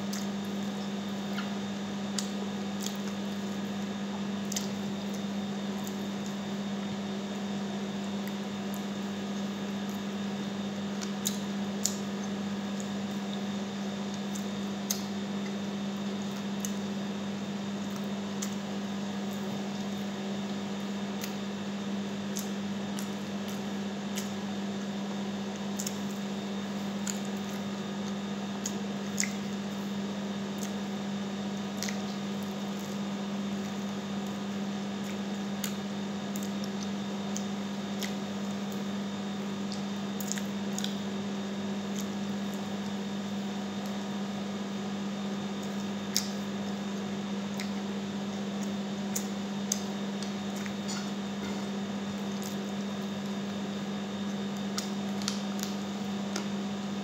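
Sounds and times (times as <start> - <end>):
person chewing chicken: 0.0 - 44.4, 45.5 - 57.0
steady hum: 0.0 - 57.0
sharp clicks and smacks: 54.3 - 56.5.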